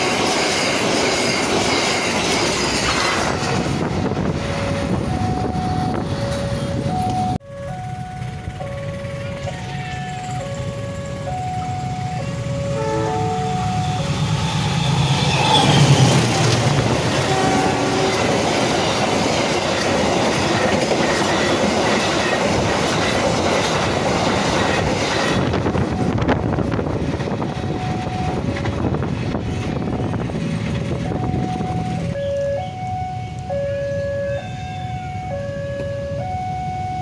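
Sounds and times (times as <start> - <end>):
train passing at speed: 0.0 - 37.0
level crossing alarm chimes: 4.3 - 15.0, 27.4 - 28.5, 31.0 - 37.0
train horn: 12.3 - 18.5.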